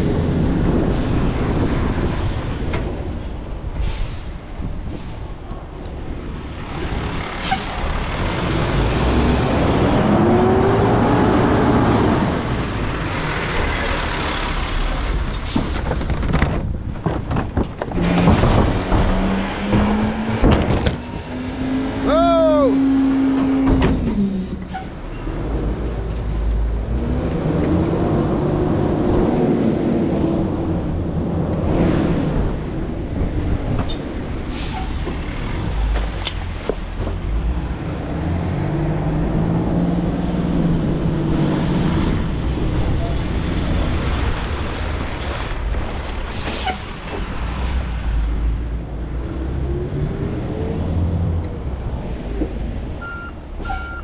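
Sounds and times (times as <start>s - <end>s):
truck engine revving: 6.5s - 15.3s, 17.9s - 25.9s, 37.1s - 45.5s.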